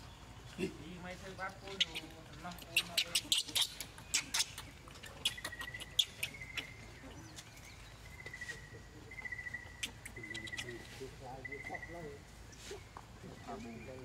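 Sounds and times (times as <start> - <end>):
baby monkey squeaking: 1.6 - 7.4, 8.2 - 12.0.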